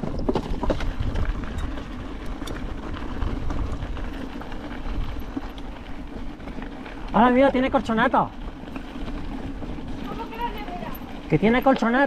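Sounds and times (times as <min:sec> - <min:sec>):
bike rumbling over rough trail: 0:00.0 - 0:12.0.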